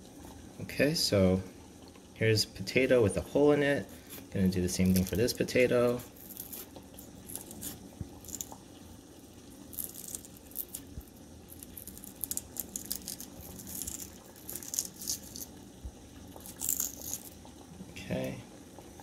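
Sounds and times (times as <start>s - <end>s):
boiling water hissing: 0.0s - 19.0s
knife scraping raw potato: 6.0s - 8.5s, 11.5s - 15.5s.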